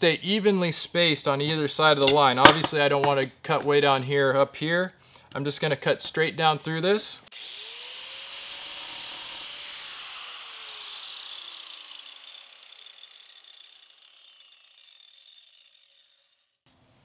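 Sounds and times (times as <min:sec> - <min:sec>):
angle grinder whine winding down: 0:07.3 - 0:16.6.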